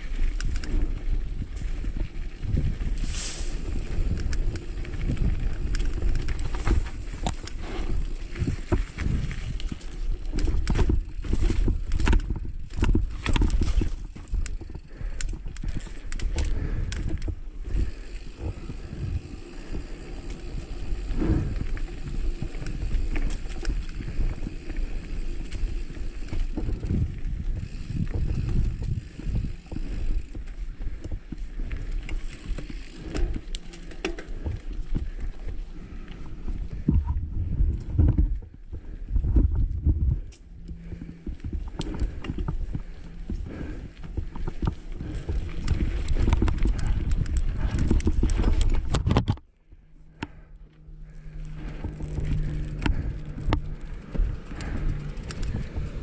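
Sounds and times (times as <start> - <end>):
bike rattling and knocking: 0.0 - 56.0
tyres rolling on dirt: 51.0 - 56.0.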